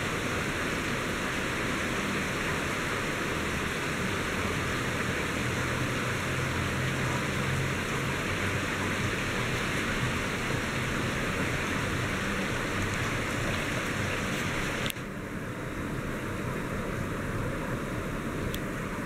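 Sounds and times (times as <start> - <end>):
heavy rain on wet pavement: 0.0 - 15.1.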